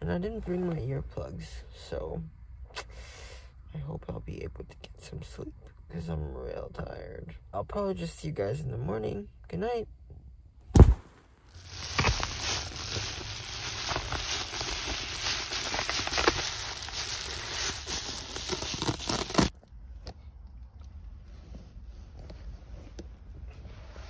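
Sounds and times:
plastic cover crinkling: 11.5 - 19.5.

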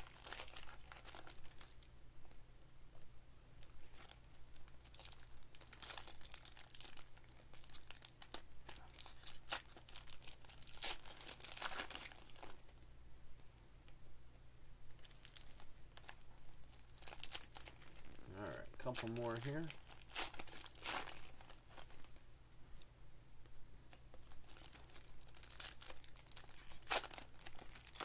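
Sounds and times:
foil wrappers tearing and crinkling: 0.0 - 1.8, 3.8 - 12.7, 15.0 - 22.2, 24.2 - 28.0.

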